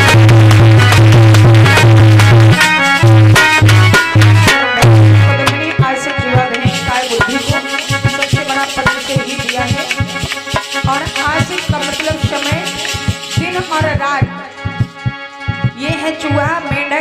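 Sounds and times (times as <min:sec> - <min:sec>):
hand drum beating: 0:00.0 - 0:17.0
sustained melodic accompaniment: 0:00.0 - 0:17.0
shaker rattle: 0:06.7 - 0:14.0.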